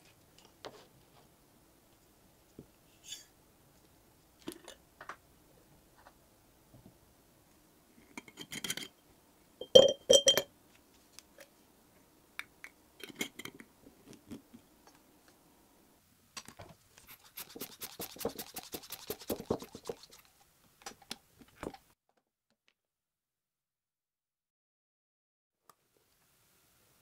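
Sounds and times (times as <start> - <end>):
glass clinks and taps: 9.6 - 10.5.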